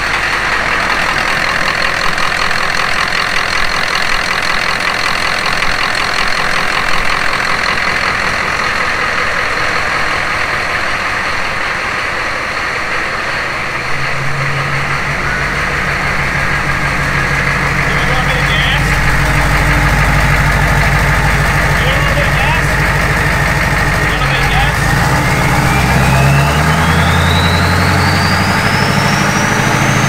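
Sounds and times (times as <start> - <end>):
diesel engine idling: 0.0 - 30.0
low steady hum: 13.0 - 26.4.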